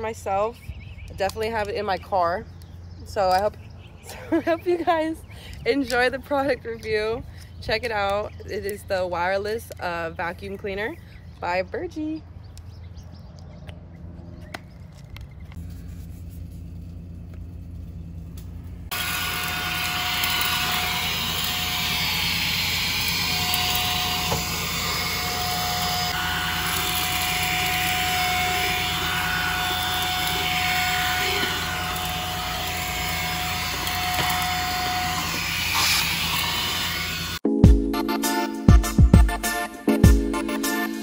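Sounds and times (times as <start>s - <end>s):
handheld vacuum running: 18.9s - 37.4s.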